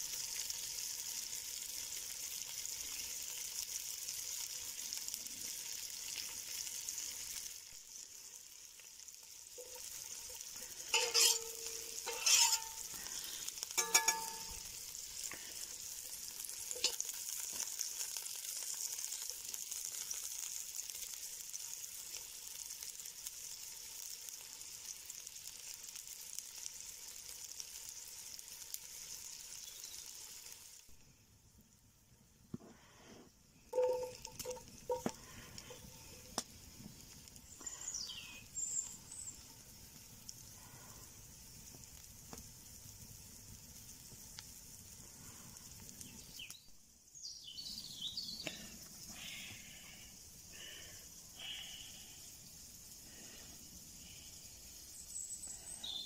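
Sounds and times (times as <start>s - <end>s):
onions sizzling in pot: 0.0s - 56.0s
short ringing sounds: 10.9s - 12.8s, 13.8s - 14.6s, 33.7s - 35.1s.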